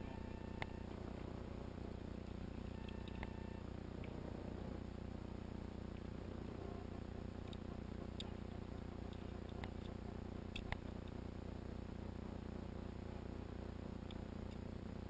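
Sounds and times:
faint scattered clicks: 0.0s - 1.0s, 2.6s - 3.4s, 7.4s - 11.3s, 14.0s - 14.7s
low background hum: 0.0s - 15.0s.

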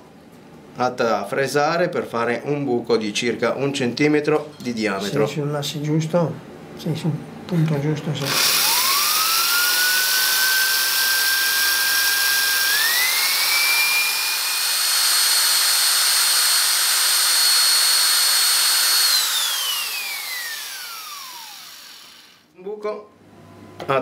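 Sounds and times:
electric drill boring into wood: 8.2s - 22.5s.

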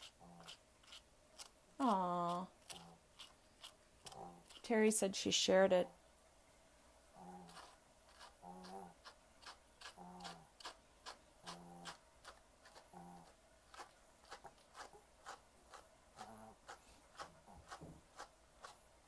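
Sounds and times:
brush scratching through fur: 0.0s - 1.5s, 2.3s - 4.8s, 7.3s - 18.9s.

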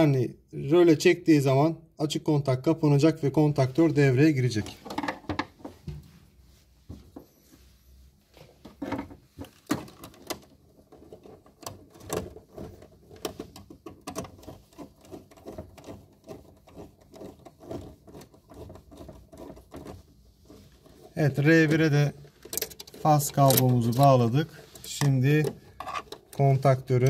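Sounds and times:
wire clicks and scrapes: 8.6s - 27.0s.

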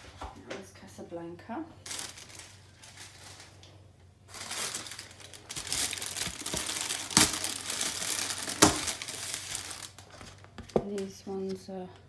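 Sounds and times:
plastic bag crinkling: 1.8s - 11.2s.

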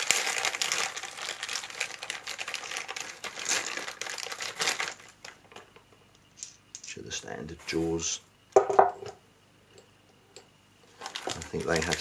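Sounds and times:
plastic bag crinkling: 0.0s - 5.7s, 10.9s - 12.0s.

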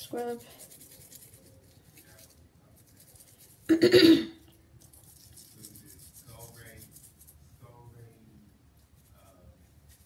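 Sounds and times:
leaf rubbing on scalp: 0.0s - 3.7s, 4.8s - 8.2s, 8.8s - 10.0s
person harsh throat sound: 3.7s - 4.4s.

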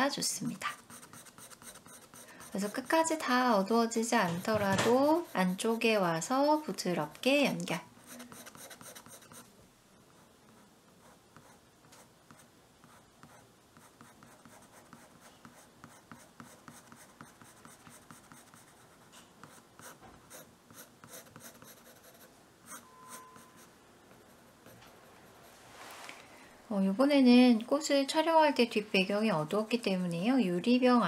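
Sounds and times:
pencil scratching on paper: 0.6s - 6.7s, 8.0s - 9.5s, 10.1s - 25.5s, 29.6s - 30.5s
brief tone: 22.7s - 23.7s.

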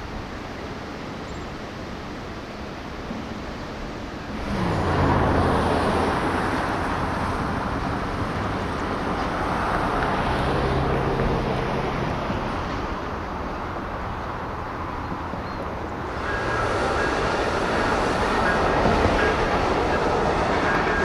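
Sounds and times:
road traffic noise: 0.0s - 21.0s
surf hiss: 0.0s - 21.0s
wind: 0.0s - 21.0s
engine drone: 15.9s - 21.0s.

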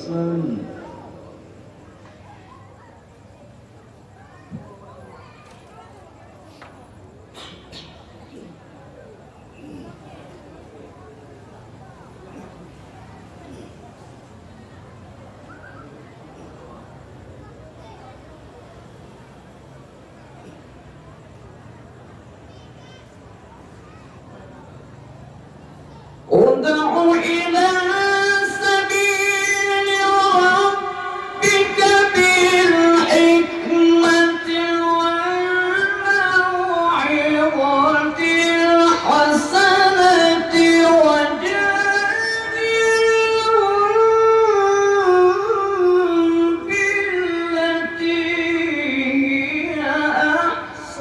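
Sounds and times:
man reciting in melodic chant: 0.0s - 1.3s, 26.3s - 51.0s.

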